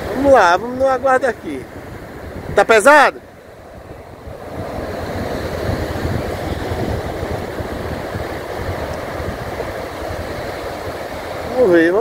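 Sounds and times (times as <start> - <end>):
ocean waves breaking on beach: 0.0 - 12.0
wind buffeting microphone: 0.0 - 12.0.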